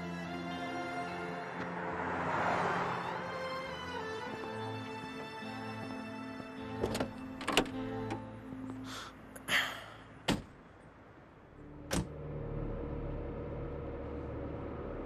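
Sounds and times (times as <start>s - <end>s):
car door shutting: 6.8s - 8.2s, 11.9s - 12.1s
low car hum: 7.2s - 15.0s.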